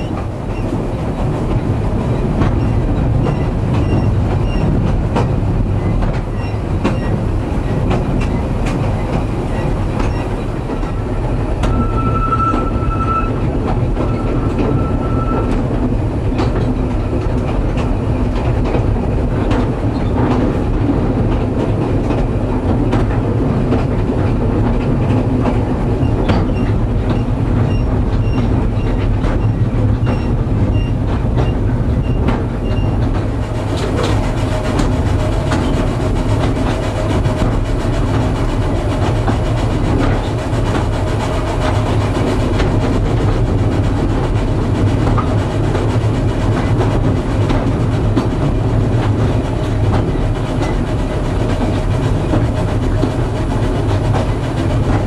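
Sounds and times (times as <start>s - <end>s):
railway carriage rumbling and rattling: 0.0s - 55.0s
thin high squeal: 11.6s - 13.4s, 14.0s - 15.6s.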